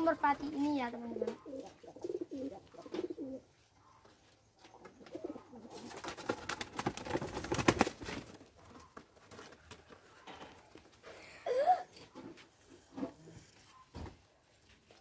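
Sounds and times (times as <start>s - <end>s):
pigeons cooing: 1.0s - 4.0s, 4.8s - 7.4s
pigeon wings flapping: 5.6s - 8.5s.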